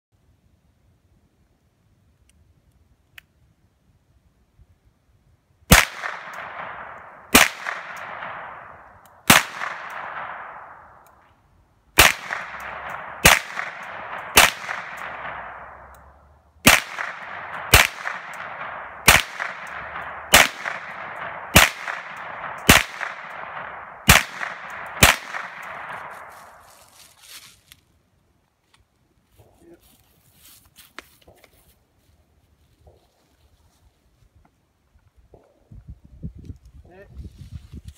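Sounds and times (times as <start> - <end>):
rifle gunshots: 5.7 - 11.0, 12.0 - 15.9, 16.6 - 26.6
rolling echo of gunshots: 5.7 - 11.0, 12.0 - 15.9, 16.6 - 26.6.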